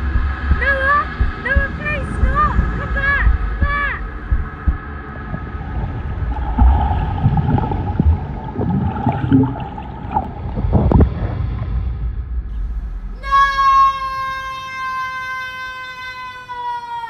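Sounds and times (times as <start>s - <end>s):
water splashing: 0.0s - 13.1s
underwater rumbling and bubbling: 0.0s - 13.9s.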